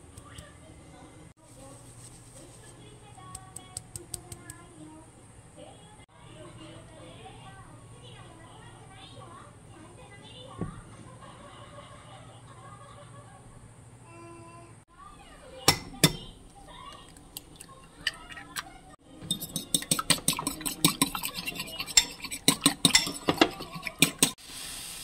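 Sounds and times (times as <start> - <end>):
fork clinking in ceramic bowl: 17.0 - 24.4.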